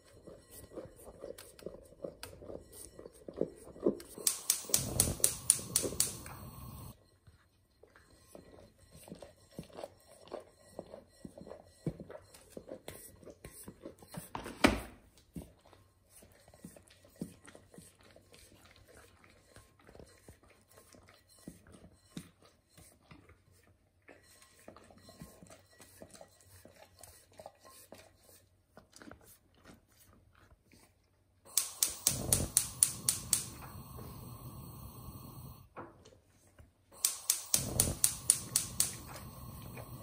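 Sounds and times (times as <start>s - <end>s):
gas flame hissing: 4.2s - 7.0s, 31.5s - 35.6s, 37.0s - 40.0s
gas hob igniter clicking: 4.2s - 7.0s, 31.5s - 35.6s, 37.0s - 40.0s.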